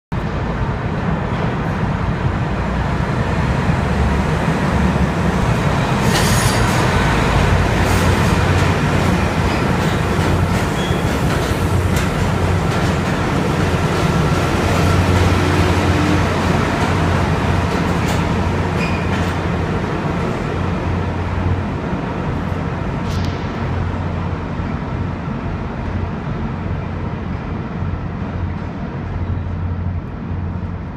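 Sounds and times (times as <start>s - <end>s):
train wheels rumbling on rails: 0.2s - 30.9s
train clicks and clanks: 5.4s - 21.6s.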